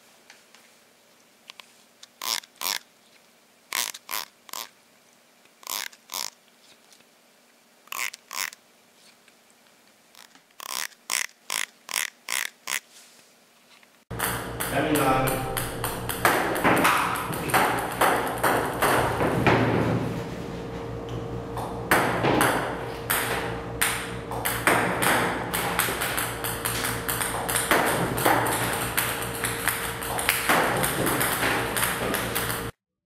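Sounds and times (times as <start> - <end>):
table tennis balls bouncing: 14.1 - 20.1, 21.6 - 32.8
steady hum: 14.1 - 32.8.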